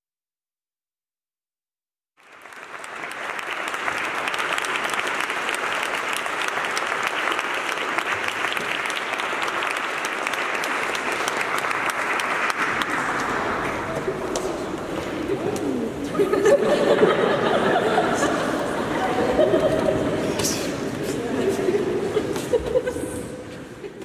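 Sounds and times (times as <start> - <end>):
audience applauding: 2.2 - 20.8.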